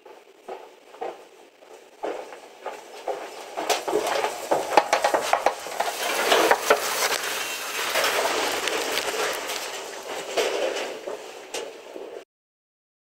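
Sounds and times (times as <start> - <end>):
twigs scraping and crackling: 3.0 - 12.1
branches dragged along dirt: 3.3 - 12.2
leaves rustling: 3.4 - 11.5.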